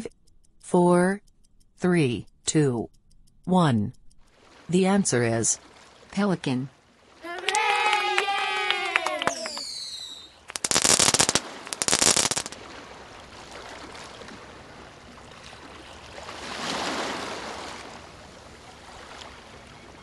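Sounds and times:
water lapping on rocky shore: 4.2s - 7.5s, 10.4s - 20.0s
firework-like crackling bursts: 9.3s - 12.6s.

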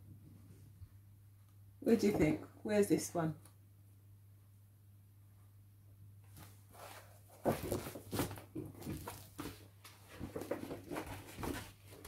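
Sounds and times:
stiff paper rustling and crinkling: 6.4s - 12.0s.

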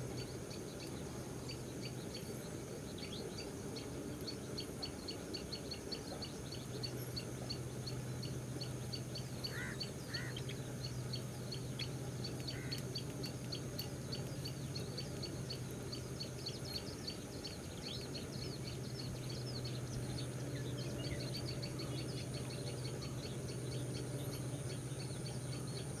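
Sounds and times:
birds chirping: 0.0s - 26.0s
low steady hum: 0.0s - 26.0s
short bird calls: 9.5s - 10.6s.

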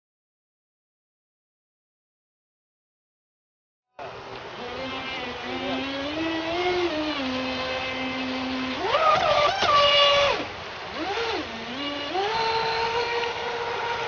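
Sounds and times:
model boat motor whining: 4.0s - 14.0s.

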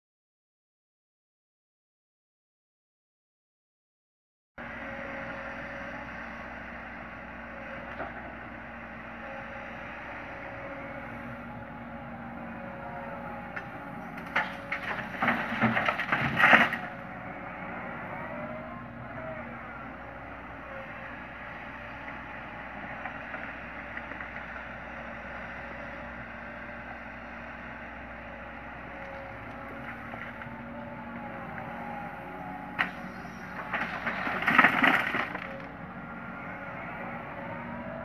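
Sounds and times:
excavator diesel engine running: 4.6s - 38.0s
hydraulic whine: 28.4s - 38.0s.

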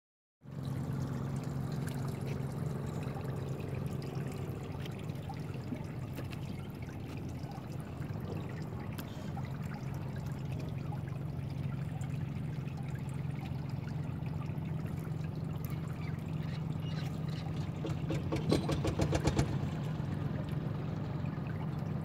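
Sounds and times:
water trickling and dripping: 0.4s - 22.0s
steady low hum: 0.5s - 18.1s.

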